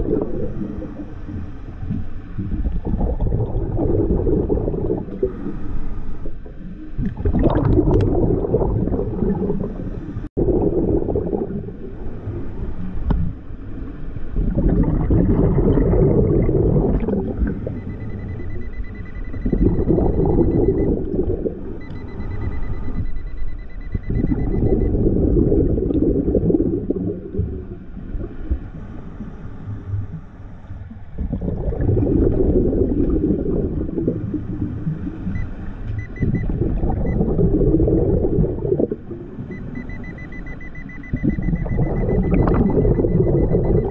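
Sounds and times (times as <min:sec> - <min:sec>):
rush of bubbles: 0:00.0 - 0:12.7, 0:14.2 - 0:18.6, 0:19.4 - 0:21.8, 0:24.1 - 0:28.8, 0:31.0 - 0:35.4, 0:36.2 - 0:39.5, 0:41.2 - 0:43.9
diver breathing through regulator: 0:04.1 - 0:06.4
metal detector beep: 0:17.7 - 0:21.0, 0:21.8 - 0:25.0, 0:35.4 - 0:36.5, 0:39.5 - 0:43.9.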